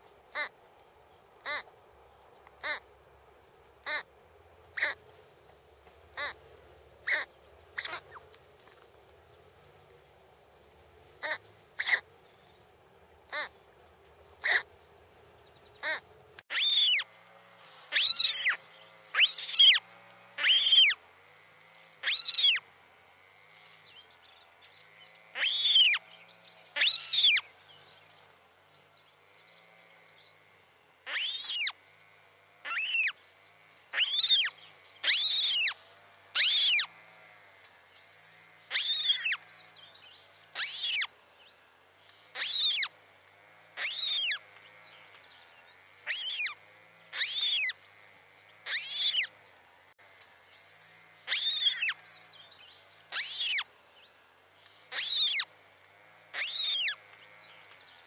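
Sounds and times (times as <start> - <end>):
bird chick mewing calls: 0.3 - 0.5, 1.4 - 1.7, 2.6 - 2.9, 3.8 - 4.1, 4.8 - 5.0, 6.2 - 6.4, 7.0 - 8.2, 11.2 - 12.1, 13.3 - 13.6, 14.4 - 14.7, 15.8 - 17.0, 17.9 - 19.8, 20.4 - 21.0, 22.0 - 22.6, 25.3 - 26.0, 26.7 - 27.4, 31.0 - 31.8, 32.6 - 33.2, 33.9 - 36.9, 38.7 - 39.5, 40.5 - 41.1, 42.3 - 42.9, 43.8 - 44.5, 46.0 - 47.8, 48.6 - 49.4, 51.2 - 52.0, 53.1 - 53.7, 54.9 - 55.5, 56.3 - 57.1.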